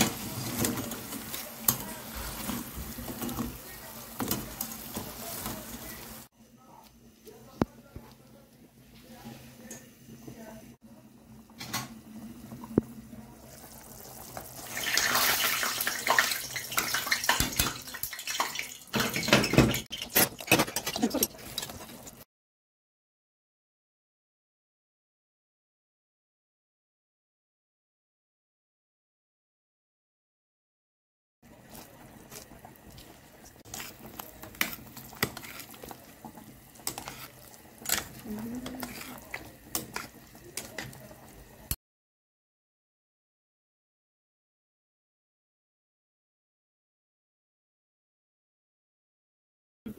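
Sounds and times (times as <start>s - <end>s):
sauce bubbling and sizzling: 0.0s - 6.3s, 12.0s - 22.2s, 31.4s - 41.8s
sauce simmering in a pot: 31.4s - 41.7s.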